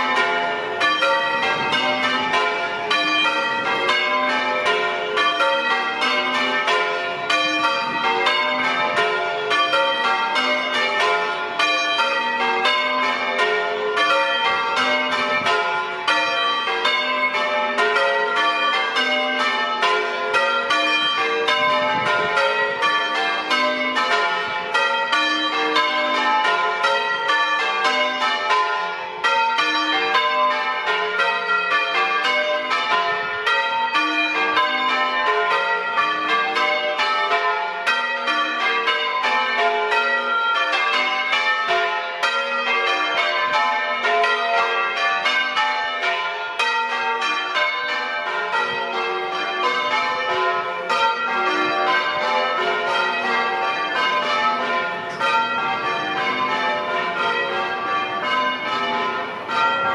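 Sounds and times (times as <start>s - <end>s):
church bells ringing: 0.0s - 59.9s.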